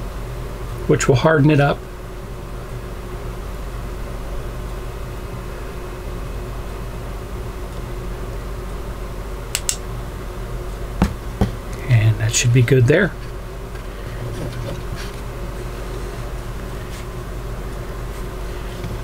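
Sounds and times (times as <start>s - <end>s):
low background hum and hiss: 0.0s - 19.0s
flashlight switch clicks: 9.5s - 9.8s.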